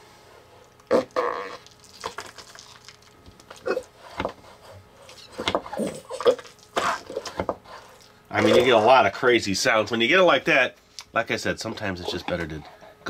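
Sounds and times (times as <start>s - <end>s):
putty squelching fart-like noises: 0.8s - 2.8s, 5.1s - 7.4s.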